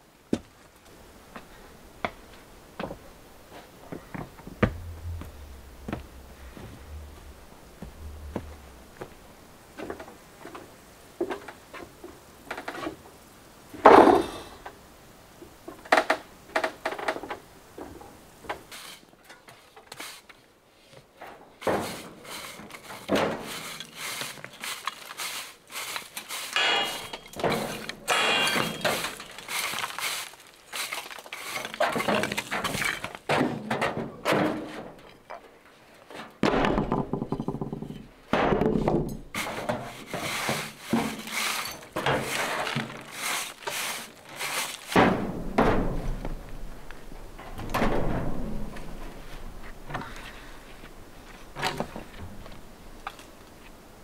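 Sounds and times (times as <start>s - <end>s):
tool scraping sand off stone: 21.8s - 33.0s, 39.4s - 45.0s.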